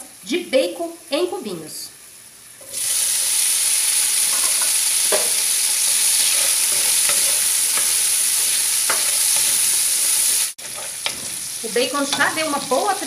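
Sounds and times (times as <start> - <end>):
bacon sizzling in oil: 0.0 - 13.0
spoon scraping and knocking pot: 6.2 - 8.0, 8.9 - 9.6.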